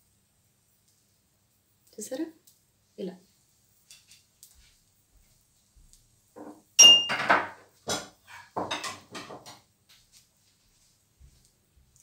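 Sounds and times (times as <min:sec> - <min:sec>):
metal kitchenware clattering: 0:06.8 - 0:09.6.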